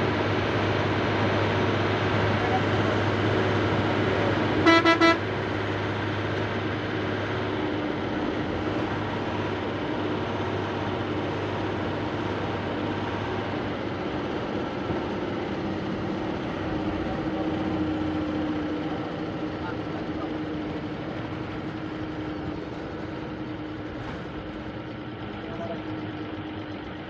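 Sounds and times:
bus engine and road noise: 0:00.0 - 0:27.0
bus horn toots: 0:04.5 - 0:05.4.

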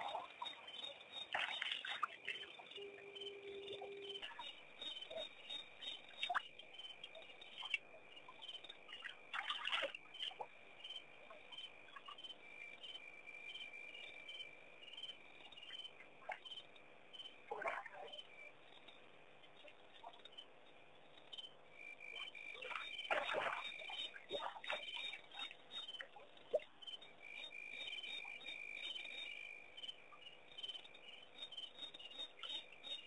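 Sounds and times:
cricket steady high trill: 0:00.0 - 0:17.5
cricket chirping: 0:00.0 - 0:33.0.

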